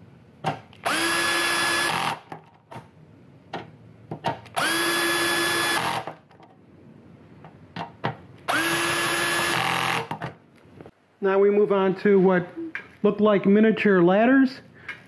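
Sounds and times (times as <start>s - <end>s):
drill driver whining: 0.8s - 2.3s, 4.5s - 6.2s, 8.5s - 10.2s.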